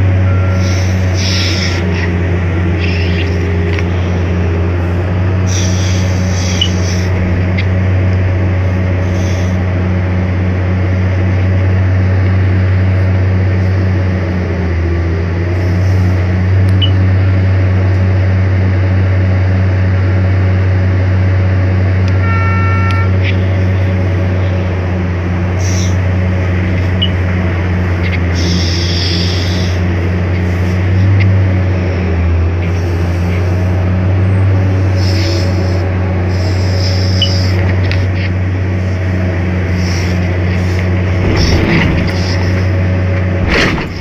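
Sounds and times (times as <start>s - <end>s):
diesel engine humming: 0.0s - 44.0s
short horn-like tone: 22.2s - 23.2s.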